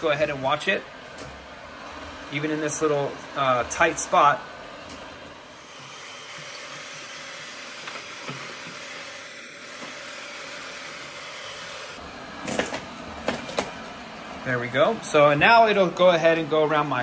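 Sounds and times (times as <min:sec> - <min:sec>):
robot vacuum whirring: 0:05.0 - 0:14.0.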